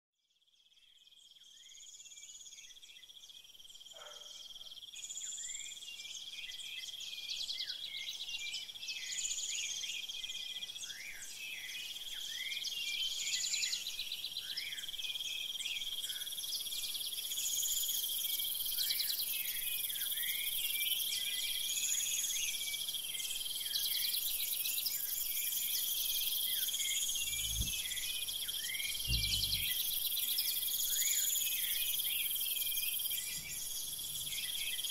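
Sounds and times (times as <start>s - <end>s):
high-pitched insect trill: 24.7s - 34.9s
low thumps: 27.2s - 28.0s, 29.1s - 29.8s.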